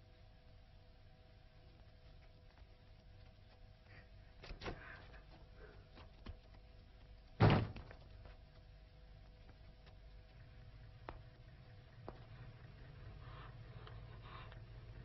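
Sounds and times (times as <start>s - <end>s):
faint steady hum: 0.0s - 15.0s
door banging: 7.4s - 8.0s.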